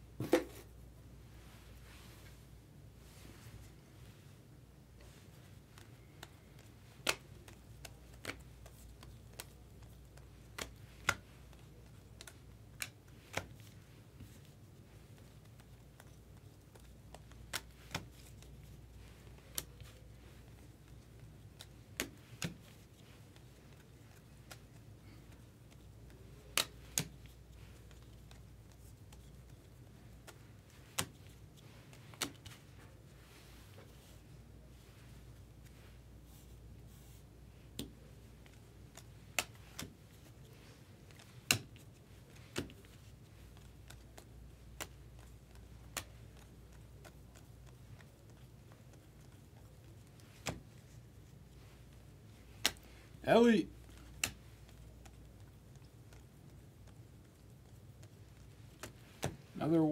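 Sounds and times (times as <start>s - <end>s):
cards clicking: 5.7s - 14.4s, 15.1s - 32.8s, 37.7s - 53.2s.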